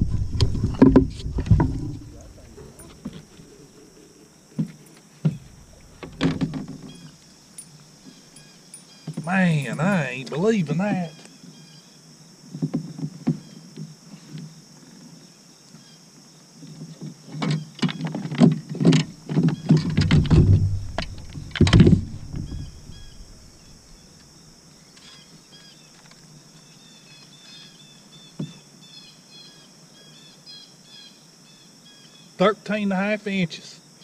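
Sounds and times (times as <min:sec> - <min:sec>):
knocks and hollow thumps on plastic: 0:00.0 - 0:02.2, 0:04.6 - 0:06.9, 0:18.1 - 0:23.6
small birds chirping faintly: 0:00.0 - 0:34.0.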